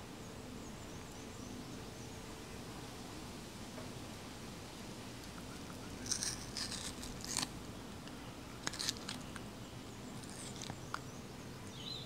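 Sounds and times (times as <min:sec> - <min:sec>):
monkey biting watermelon: 0:06.0 - 0:07.5.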